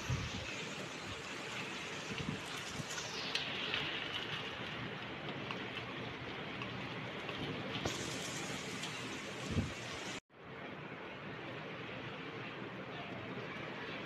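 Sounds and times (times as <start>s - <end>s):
rain falling: 0.0s - 10.2s.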